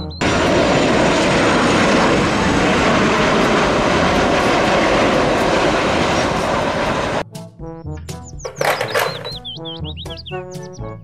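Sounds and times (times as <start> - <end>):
jet engines roaring: 0.1 - 7.2, 8.5 - 9.5.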